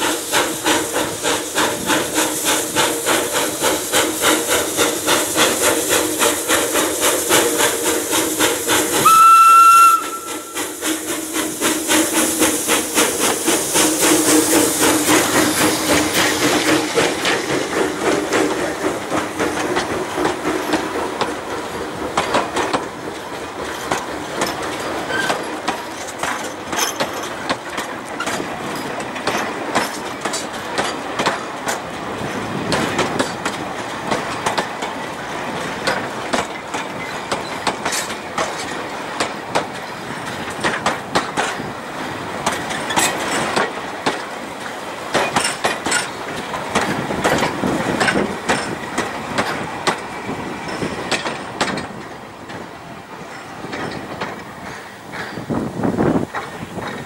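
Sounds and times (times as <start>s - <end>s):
wagon wheels clacking on rails: 0.0s - 57.0s.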